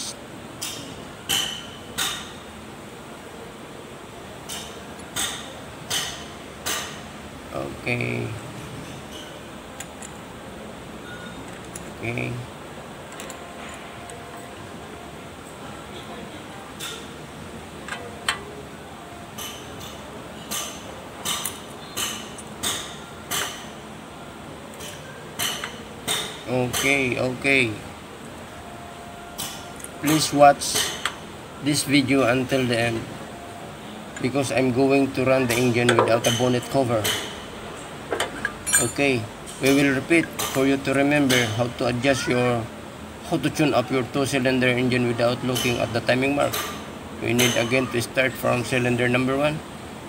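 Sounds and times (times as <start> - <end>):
metallic clinks of wrench and screwdriver: 38.3 - 40.6.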